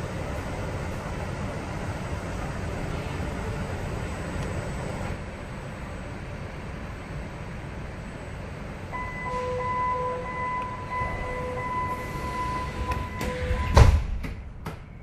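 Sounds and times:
train car rumble: 0:00.0 - 0:15.0
steady high tone: 0:08.9 - 0:13.9
pulsing lower tone: 0:09.0 - 0:13.8.

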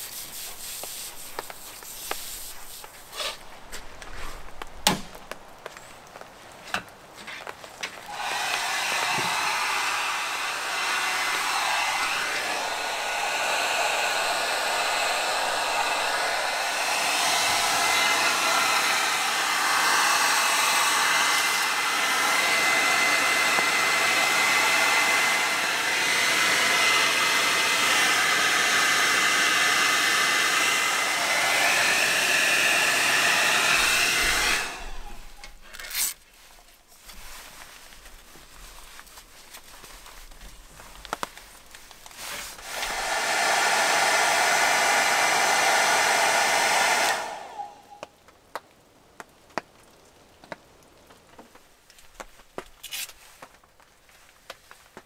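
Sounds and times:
hot-air dryer blowing: 0:08.0 - 0:35.6, 0:42.1 - 0:48.2.

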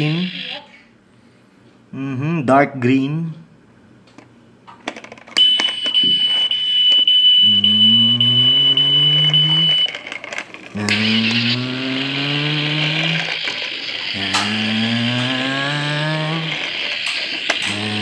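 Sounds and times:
toy truck engine revving effect: 0:00.0 - 0:00.6, 0:07.5 - 0:18.0
steady high beep: 0:05.4 - 0:10.0.

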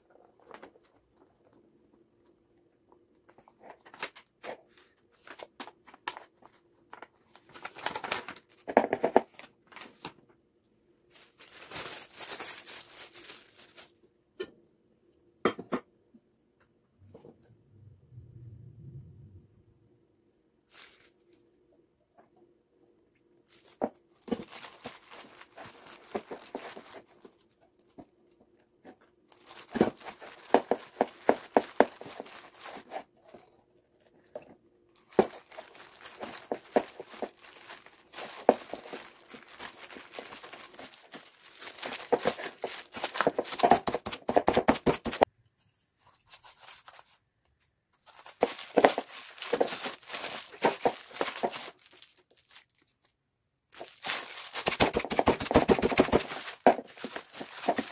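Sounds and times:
hand kneading dough in plastic bowl: 0:34.1 - 0:45.3, 0:48.1 - 0:51.8, 0:53.8 - 0:57.9.

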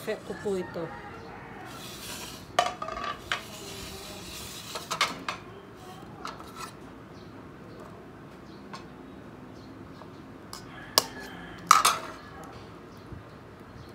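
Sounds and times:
dishes and utensils clinking: 0:02.1 - 0:05.5, 0:10.6 - 0:12.2.

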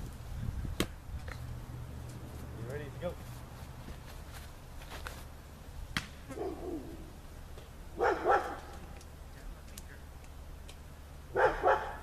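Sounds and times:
sharp smack: 0:05.9 - 0:06.3
dog barking: 0:06.3 - 0:07.0, 0:08.0 - 0:08.7, 0:11.3 - 0:12.0.

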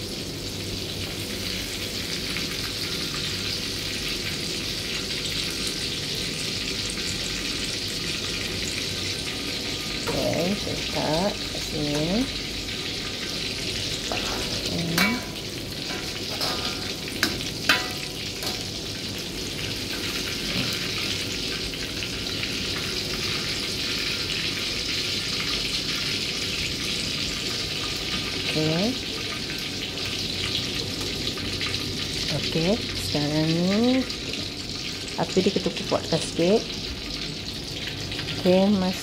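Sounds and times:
tofu sizzling in hot oil: 0:00.0 - 0:39.0
wire strainer clinking on wok: 0:14.1 - 0:18.6.

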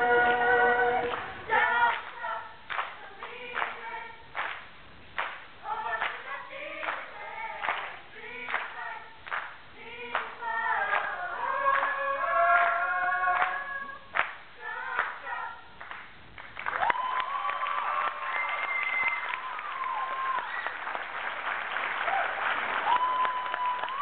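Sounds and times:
group of voices singing: 0:00.0 - 0:04.2, 0:05.6 - 0:15.7
sharp claps: 0:02.7 - 0:03.0, 0:04.4 - 0:06.2, 0:07.6 - 0:08.7, 0:09.3 - 0:10.3, 0:14.2 - 0:14.4.

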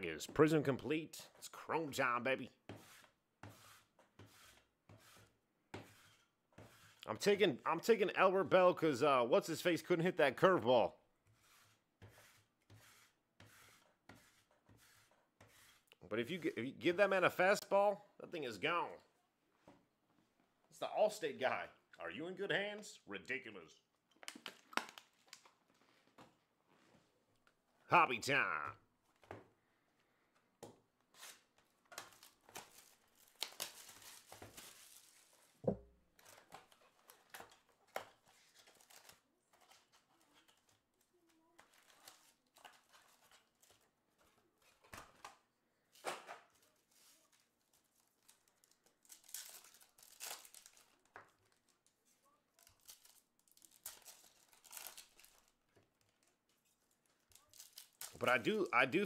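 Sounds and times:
card wrappers tearing and crinkling: 0:24.3 - 0:25.6, 0:31.1 - 0:35.6, 0:36.2 - 0:40.8, 0:41.5 - 0:44.9, 0:46.5 - 0:58.3.

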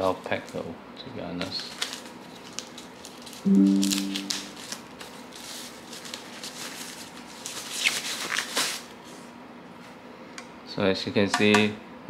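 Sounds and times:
plastic wrapping crinkling: 0:01.5 - 0:03.4, 0:04.5 - 0:08.8.

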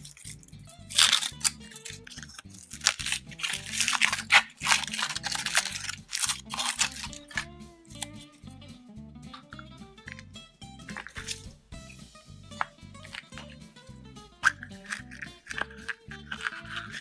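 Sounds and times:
foil wrapper crinkling and tearing: 0:00.0 - 0:08.2, 0:10.9 - 0:11.5, 0:14.4 - 0:17.0
background music: 0:00.0 - 0:17.0.

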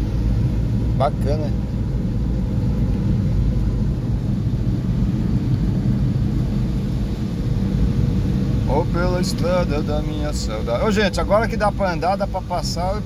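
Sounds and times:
car engine and tyres on wet road: 0:00.0 - 0:13.0.

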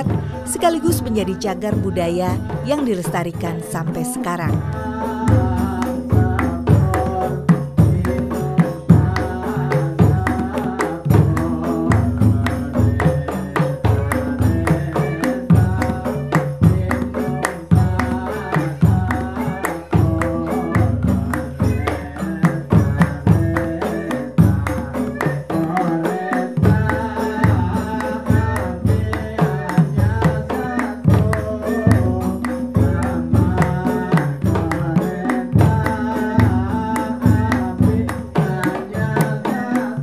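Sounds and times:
deep drum beat: 0:00.0 - 0:07.2
jingling frame drums: 0:00.0 - 0:40.0.

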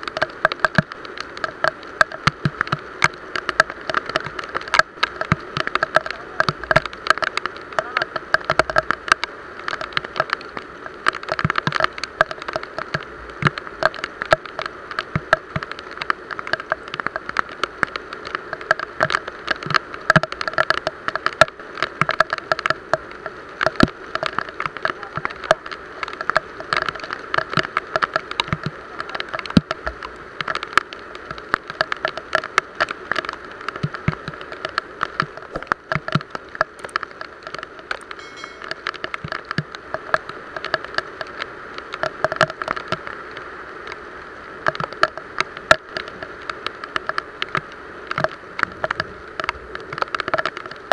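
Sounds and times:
heavy rain drops on boat: 0:00.0 - 0:50.9
rain hiss: 0:00.0 - 0:50.9.

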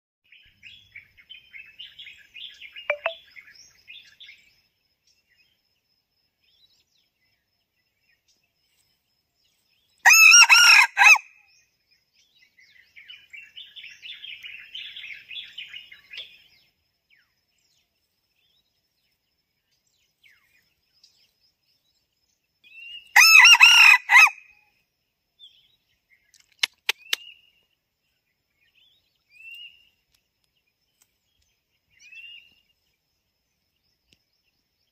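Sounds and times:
small birds twittering: 0:00.3 - 0:10.1, 0:11.4 - 0:23.5, 0:24.5 - 0:34.9
rooster crowing: 0:10.0 - 0:11.3, 0:23.2 - 0:24.5.

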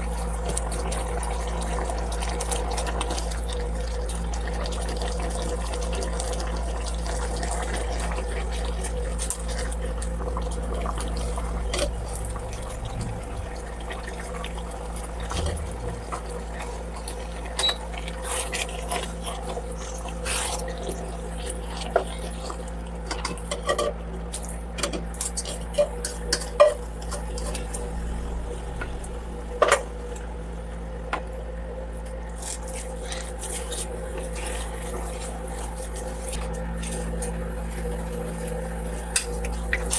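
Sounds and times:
low hum: 0:00.0 - 0:20.1, 0:25.8 - 0:39.9
broth bubbling: 0:00.0 - 0:23.2, 0:25.5 - 0:31.9.

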